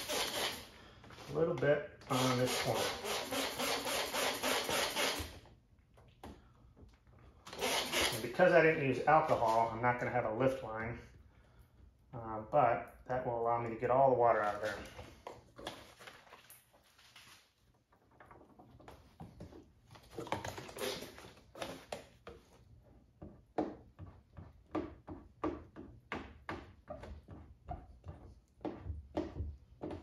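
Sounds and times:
squeegee rubbing wet film: 2.1 - 5.2, 20.0 - 22.6.

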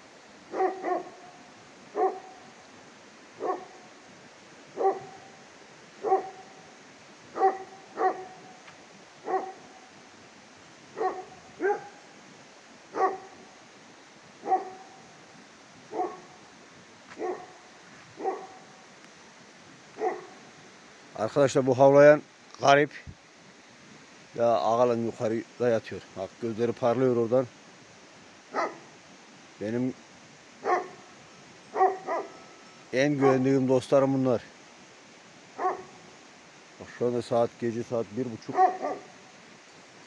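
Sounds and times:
dog barking: 0.5 - 1.3, 1.9 - 2.4, 3.4 - 3.8, 4.8 - 5.4, 6.0 - 6.5, 7.3 - 8.4, 9.2 - 9.7, 11.0 - 12.0, 12.9 - 13.4, 14.4 - 15.0, 15.9 - 16.4, 17.1 - 17.6, 18.2 - 18.6, 20.0 - 20.4, 28.5 - 28.9, 30.6 - 31.0, 31.7 - 32.4, 33.2 - 33.5, 35.6 - 36.0, 38.5 - 39.1.

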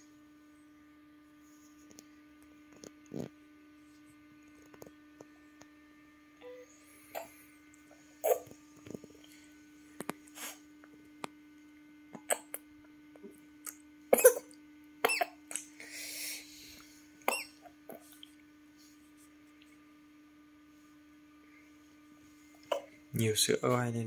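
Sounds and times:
low electrical hum: 0.0 - 24.0
infant feeding noises: 8.2 - 9.4.

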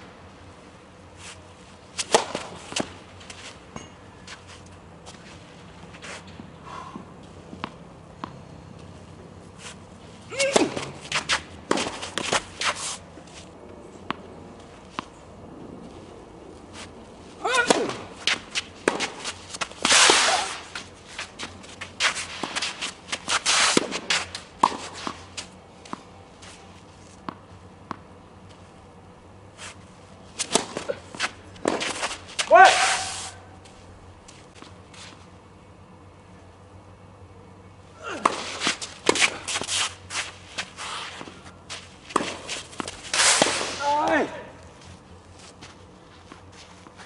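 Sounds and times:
racket striking ball: 2.0 - 3.0, 10.3 - 12.8, 17.4 - 26.1, 30.4 - 33.2, 38.0 - 44.4
footsteps and shoe scuffs: 10.8 - 13.6, 31.1 - 35.3, 38.4 - 43.5, 44.7 - 47.0.

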